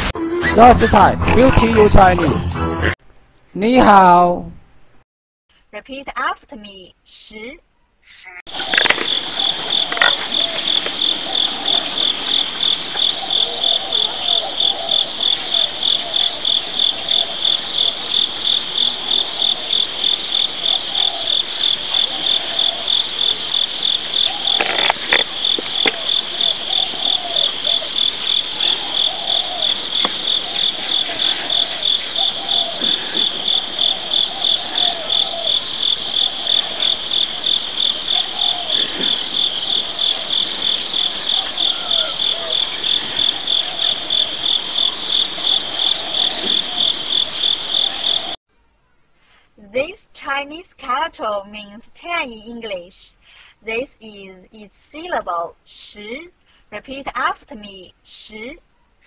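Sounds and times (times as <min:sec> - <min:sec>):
insects chirping: 0:08.4 - 0:48.4.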